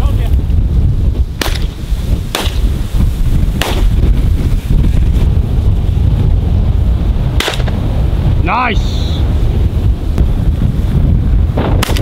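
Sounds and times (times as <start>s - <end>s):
wind rumble on microphone: 0.0s - 12.0s
shotgun shots: 1.4s - 2.7s, 3.6s - 4.0s, 7.4s - 7.8s, 11.8s - 12.0s.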